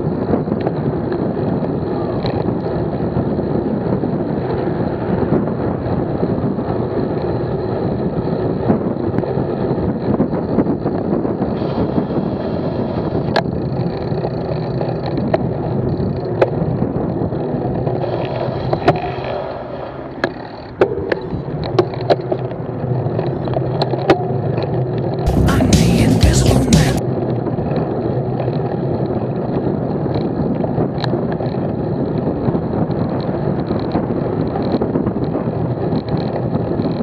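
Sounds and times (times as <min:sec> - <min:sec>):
bicycle road noise: 0:00.0 - 0:25.2, 0:27.1 - 0:37.0
wind rushing over microphone: 0:00.0 - 0:25.2, 0:27.0 - 0:37.0.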